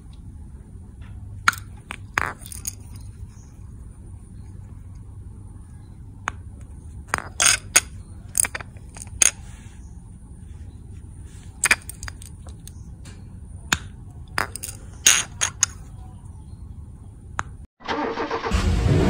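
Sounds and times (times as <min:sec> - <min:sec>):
metal bearing clicks and scrapes: 0:01.0 - 0:05.1, 0:06.2 - 0:10.0, 0:11.0 - 0:16.4.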